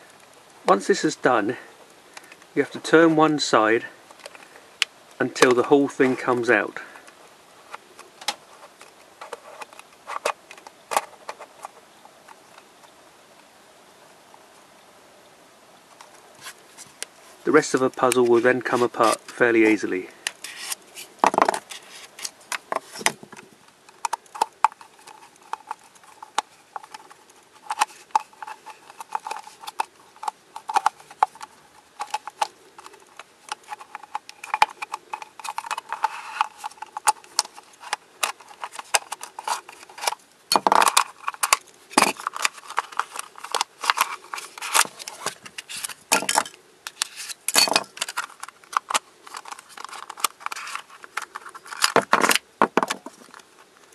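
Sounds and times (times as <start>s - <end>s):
plastic puzzle pieces clicking: 20.2s - 53.3s.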